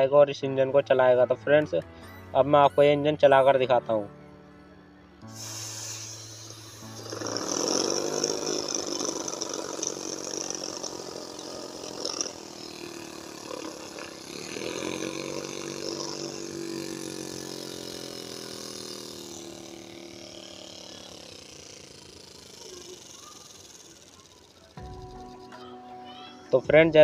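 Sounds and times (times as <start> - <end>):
small air engine buzzing: 5.2 - 27.0
hiss of escaping air: 5.3 - 12.6.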